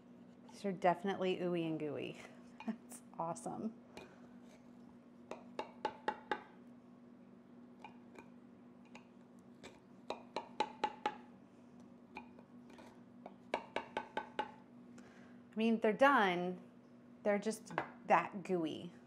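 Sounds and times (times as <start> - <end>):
knife tapping on glass dish: 10.1 - 11.2.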